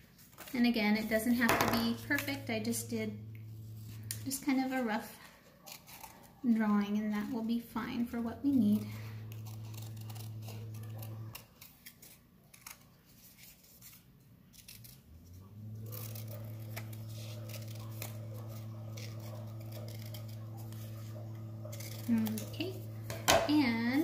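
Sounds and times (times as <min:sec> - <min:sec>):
steady low hum: 0:00.4 - 0:12.1, 0:14.7 - 0:24.0
scissors snipping paper: 0:04.1 - 0:24.0.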